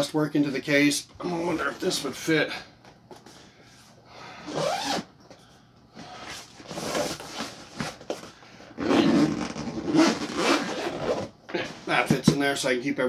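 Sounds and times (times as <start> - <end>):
zipper being pulled: 4.4 - 5.1, 8.8 - 11.9
nylon fabric rustling: 8.8 - 12.1.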